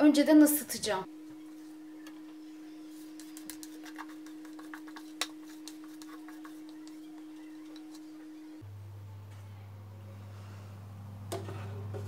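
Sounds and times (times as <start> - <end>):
spatula scraping plastic bowl: 2.8 - 8.4.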